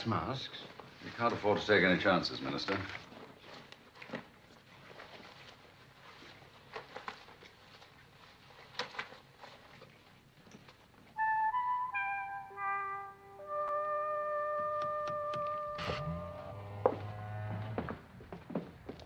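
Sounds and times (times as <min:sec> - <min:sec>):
gas masks rustling: 0:00.7 - 0:10.9
keypad electronic tones: 0:14.5 - 0:16.2.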